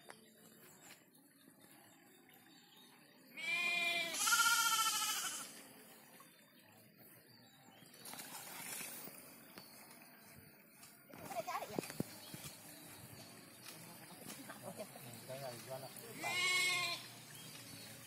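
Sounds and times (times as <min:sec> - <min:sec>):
goat bleating: 0:03.4 - 0:05.6, 0:16.2 - 0:17.1.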